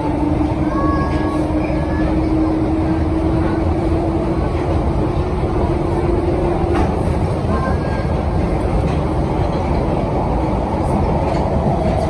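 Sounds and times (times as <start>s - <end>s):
steady train whine: 0.0s - 12.0s
train rumbling on track: 0.0s - 12.0s.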